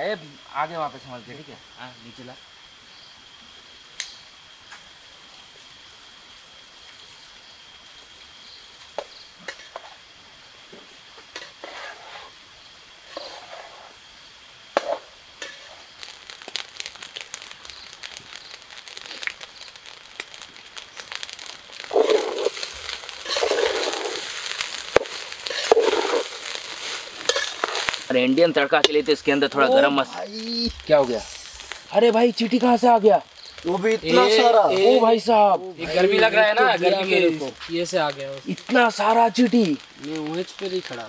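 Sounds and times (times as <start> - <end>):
rice sizzling and crackling: 0.0 - 41.0
metal spatula scraping pot: 27.2 - 27.9.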